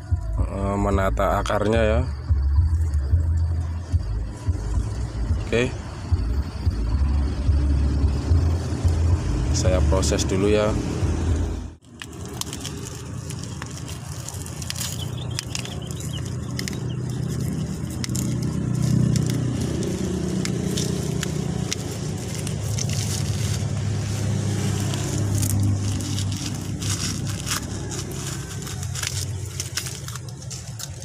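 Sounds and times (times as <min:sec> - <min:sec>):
plastic wrap crinkling and tearing: 0:11.8 - 0:31.0.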